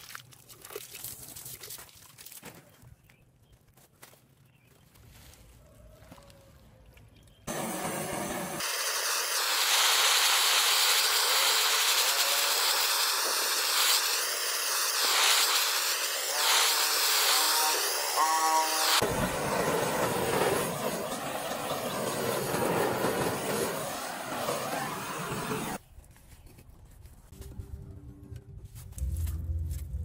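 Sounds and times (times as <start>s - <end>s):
blow torch flame hissing: 7.5s - 25.8s.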